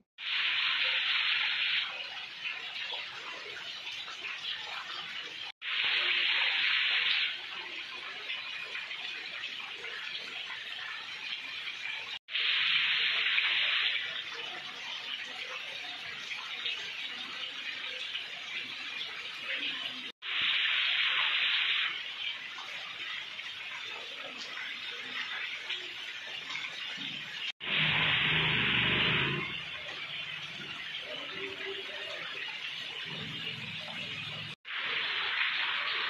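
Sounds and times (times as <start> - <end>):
rainfall hiss: 27.6 - 30.4.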